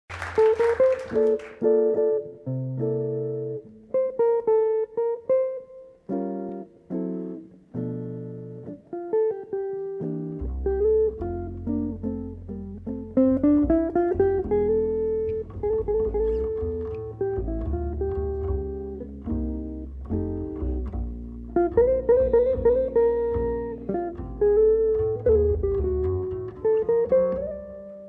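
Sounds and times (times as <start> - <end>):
jazz electric guitar chords: 0.1 - 28.0
double bass low notes: 9.9 - 28.0.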